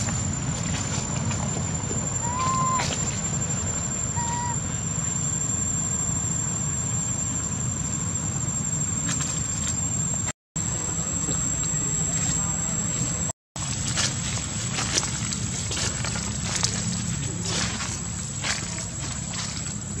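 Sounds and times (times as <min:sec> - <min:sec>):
high whine: 0:00.0 - 0:20.0
low rumble: 0:00.0 - 0:20.0
baby monkey coo calls: 0:02.0 - 0:03.2, 0:04.0 - 0:04.7.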